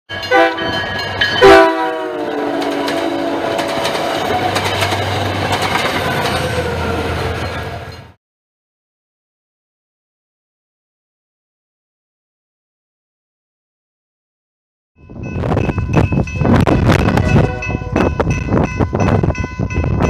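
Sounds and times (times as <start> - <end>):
train rumble and clickety-clack: 0.1 - 8.2, 15.0 - 20.0
train horn blasts: 0.2 - 0.8, 1.4 - 4.1, 16.8 - 18.4.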